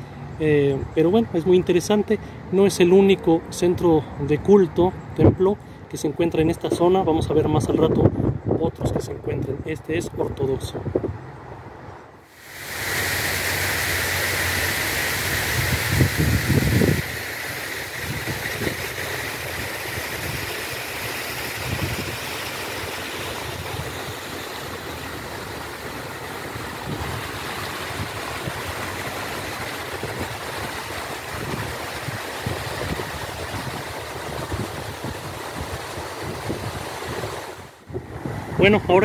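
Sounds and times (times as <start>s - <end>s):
wind buffeting microphone: 6.8s - 11.4s, 15.4s - 17.2s, 17.9s - 20.6s, 21.5s - 22.4s, 23.4s - 39.0s
fountain spray hiss: 12.2s - 37.8s.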